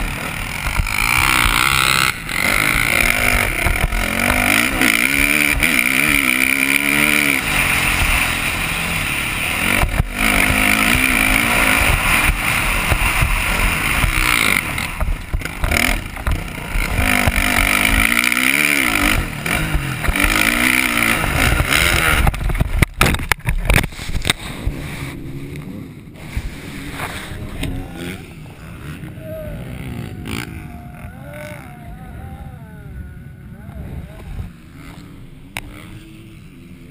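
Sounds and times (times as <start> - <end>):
motorbike crashing: 0.0 - 24.8
motorbike engine revving: 0.0 - 36.9.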